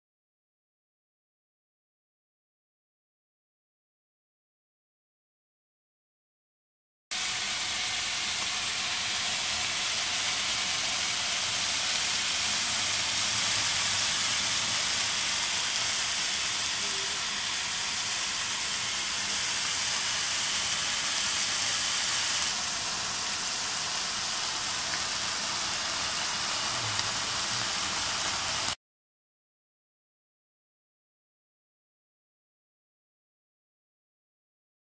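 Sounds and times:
meat sizzling in a frying pan: 7.1 - 28.8.

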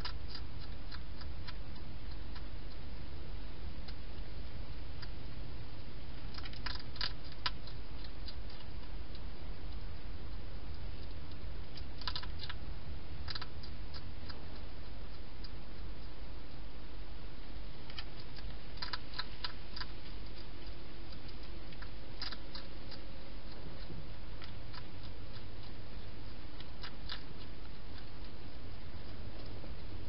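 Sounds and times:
hedgehog chewing food: 0.0 - 30.0.

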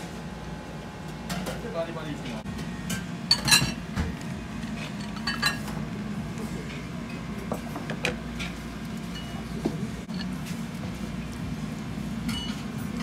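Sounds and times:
ceramic dishes clinking: 3.3 - 3.8, 5.0 - 5.8.

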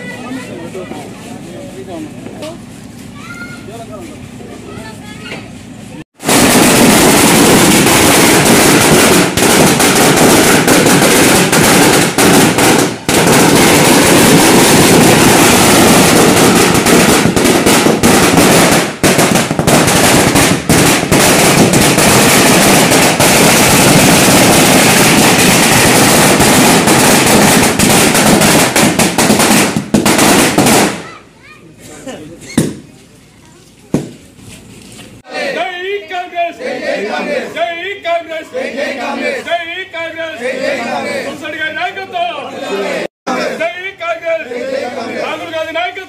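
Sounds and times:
firecrackers banging: 0.0 - 36.4.

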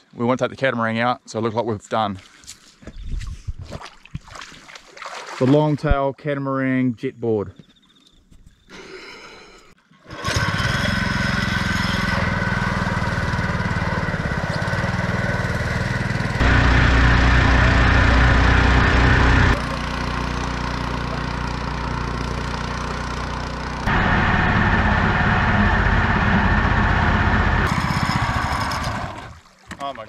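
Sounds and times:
outboard engine running: 10.1 - 29.4.

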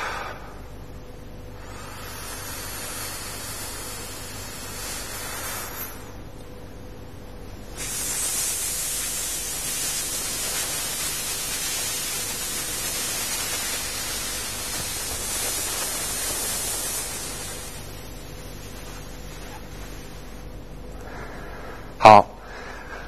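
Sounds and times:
breath exhaled through lips: 0.0 - 0.6, 1.6 - 6.2.

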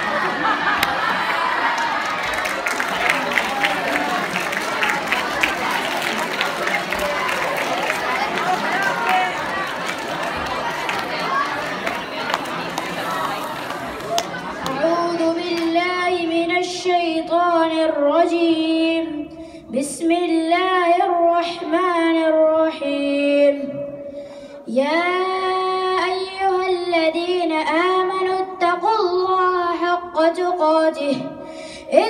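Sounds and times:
boy chanting recitation: 14.6 - 24.0, 24.6 - 32.0.

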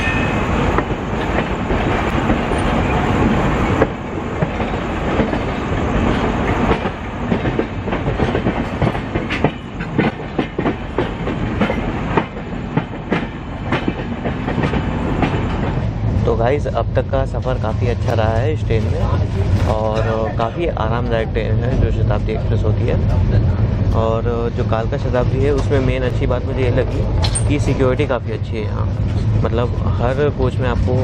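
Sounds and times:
wheels clacking over rail joints: 0.0 - 16.2
train wheels rumbling on rail: 0.0 - 31.0.

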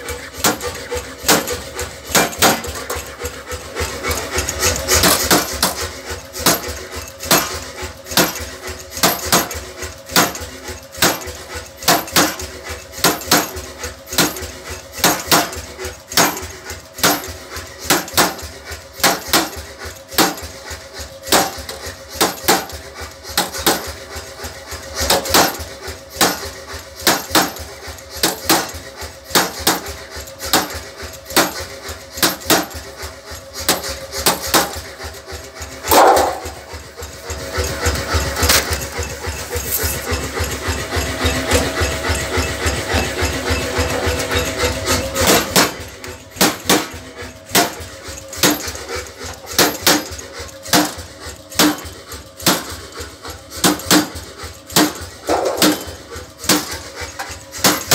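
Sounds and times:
forging hammer striking metal: 0.3 - 3.0, 6.4 - 10.4, 11.0 - 18.4, 19.0 - 19.5, 21.3 - 22.7, 26.2 - 26.5, 35.8 - 36.7, 45.2 - 47.8, 48.4 - 51.0, 51.6 - 51.8, 52.4 - 52.7, 53.6 - 56.9, 57.6 - 57.9.

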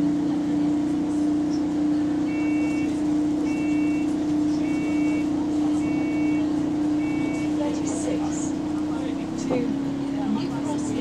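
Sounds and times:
bus engine and compressor hum: 0.0 - 11.0
two-tone electronic beep: 2.3 - 2.9, 3.5 - 6.4.

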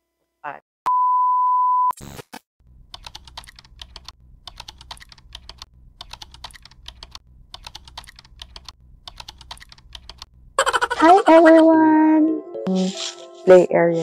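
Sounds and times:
rapid clicking: 2.9 - 10.4.

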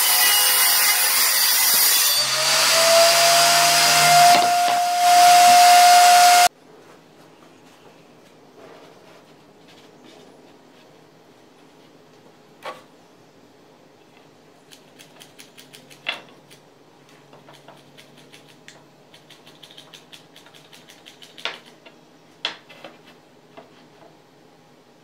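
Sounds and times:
small rapid clicks: 17.5 - 21.9.

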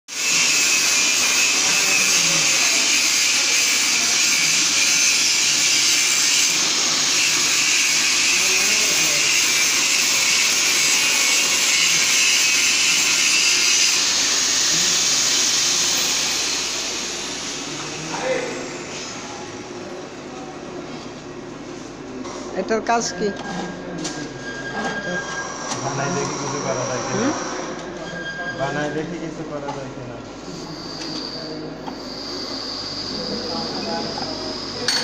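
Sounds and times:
angle grinder grinding steel: 0.1 - 19.1.

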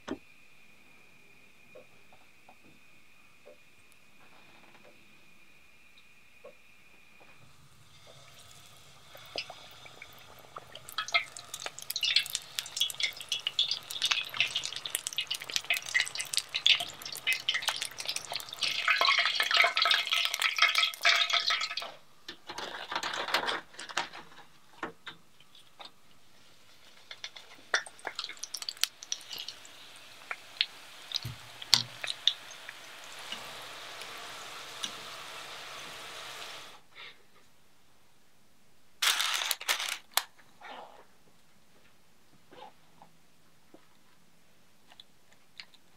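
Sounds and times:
fish deep-frying in oil: 7.5 - 22.0, 25.4 - 36.8
oil popping: 7.9 - 21.9, 26.8 - 35.5.

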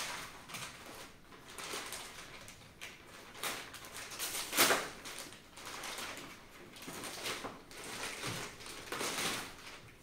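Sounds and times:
plastic crinkling and rustling: 0.0 - 10.0
knife slitting plastic mailer: 3.4 - 5.3.

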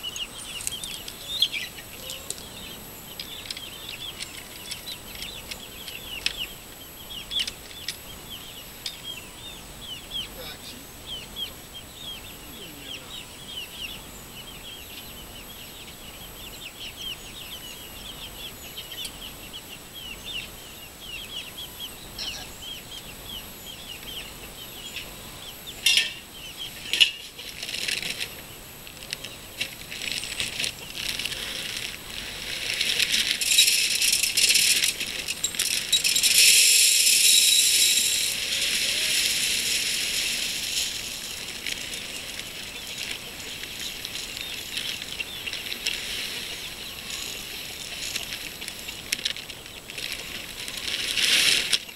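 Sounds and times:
small bird chirps: 0.0 - 27.4
grain rattling on metal: 29.6 - 45.0.

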